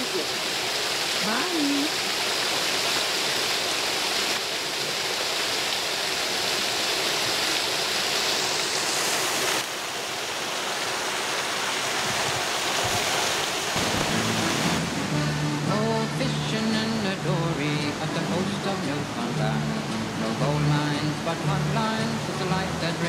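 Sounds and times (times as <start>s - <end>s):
water rushing over rocky ledge: 0.0s - 23.0s
music: 14.1s - 23.0s.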